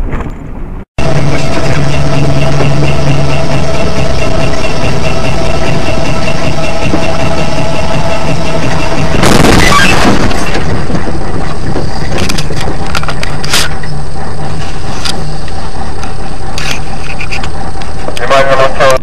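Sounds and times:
truck engine running: 0.0 - 19.0.

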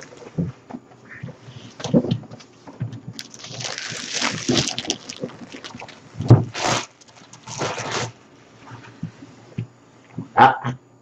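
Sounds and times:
plastic wrap crinkling and tearing: 0.0 - 0.3, 3.2 - 8.4.

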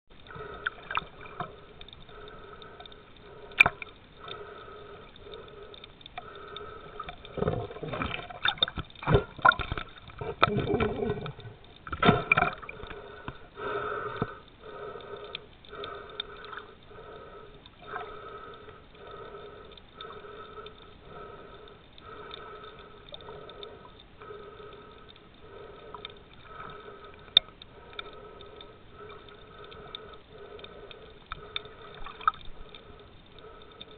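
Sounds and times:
bubbling and splashing: 0.2 - 19.6, 20.2 - 33.9
muffled underwater pulsing: 6.3 - 13.9.

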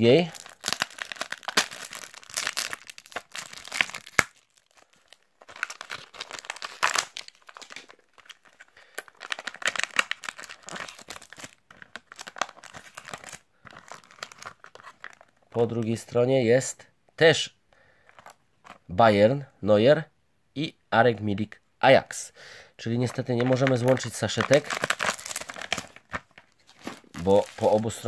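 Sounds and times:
plastic crinkling and tearing: 0.0 - 15.4, 23.0 - 28.0.

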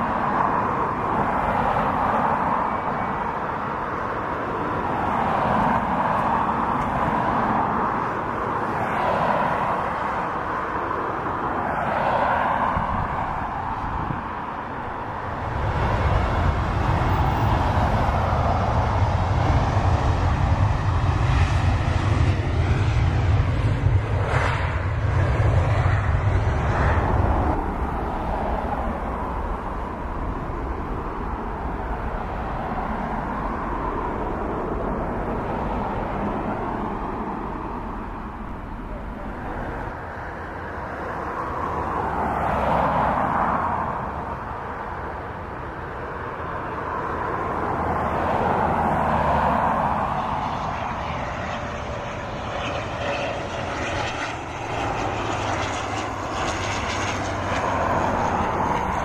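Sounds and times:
jet engines whining: 0.0 - 43.1, 45.8 - 59.0.

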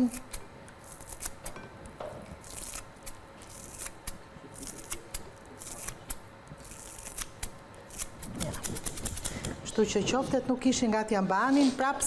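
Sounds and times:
knife cutting herbs: 0.0 - 1.6, 2.2 - 9.7.

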